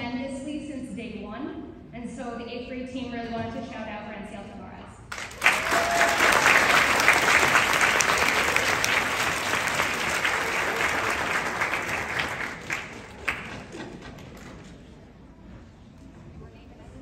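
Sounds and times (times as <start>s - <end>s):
audience applauding: 5.1s - 14.6s.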